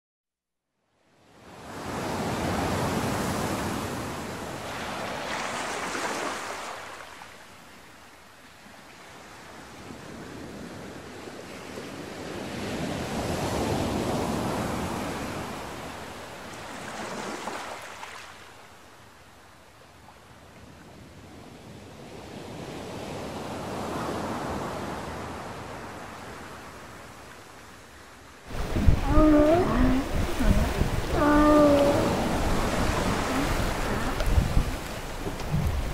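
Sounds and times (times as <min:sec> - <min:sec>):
wind: 0:00.7 - 0:35.9
ocean waves washing in: 0:01.3 - 0:10.2, 0:22.1 - 0:35.9.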